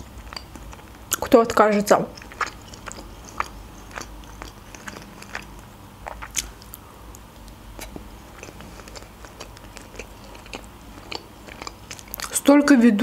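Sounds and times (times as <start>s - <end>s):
chewing and biting chicken: 2.2s - 6.8s, 7.4s - 12.4s
mouth clicks and smacks: 2.2s - 12.4s.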